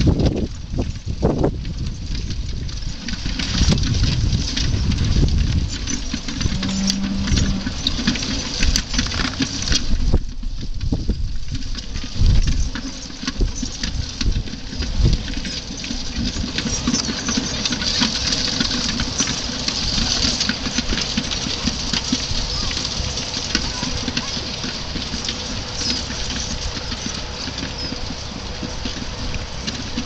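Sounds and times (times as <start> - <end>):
horse-drawn harrow clattering: 0.0 - 30.0
low thumps: 6.4 - 8.1.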